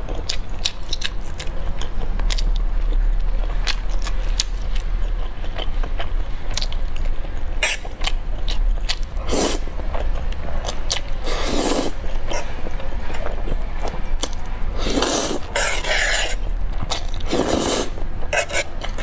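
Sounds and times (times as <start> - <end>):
mouth clicks and chewing: 0.0 - 19.0
steady low hum: 0.0 - 19.0
slurping thick noodles: 11.2 - 12.0, 14.8 - 16.4, 17.2 - 19.0.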